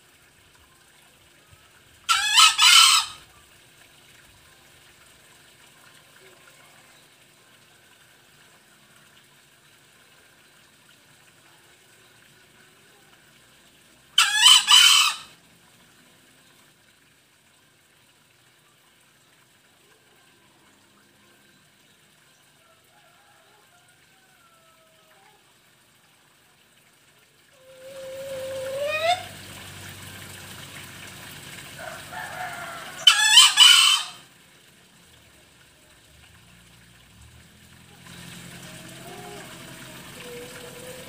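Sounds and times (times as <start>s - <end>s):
junglefowl crowing: 2.1s - 3.3s, 14.2s - 15.4s, 27.6s - 29.3s, 31.8s - 34.3s.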